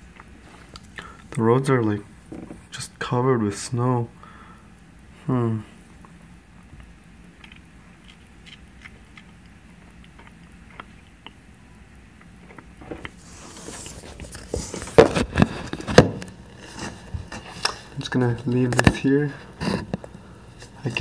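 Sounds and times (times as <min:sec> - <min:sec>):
faint hum with ticks: 0:00.0 - 0:21.0
rustling and scraping: 0:12.5 - 0:21.0.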